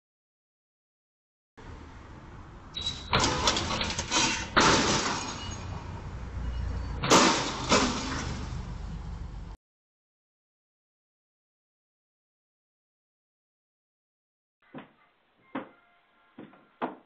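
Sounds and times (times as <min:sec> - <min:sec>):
shattering noise: 0:03.1 - 0:05.6, 0:07.0 - 0:08.5
metal pole crashing onto road: 0:03.1 - 0:05.8, 0:07.0 - 0:08.6.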